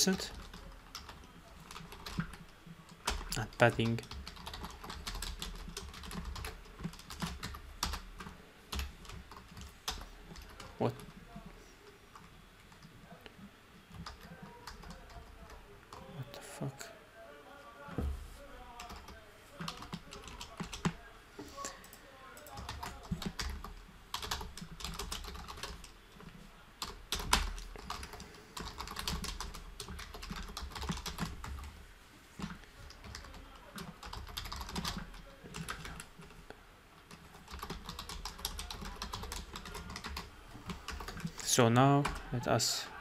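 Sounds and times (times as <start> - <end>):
typing on computer keyboard: 0.0 - 11.2, 13.9 - 16.1, 18.8 - 21.0, 21.9 - 31.7, 32.4 - 36.4, 37.0 - 41.4.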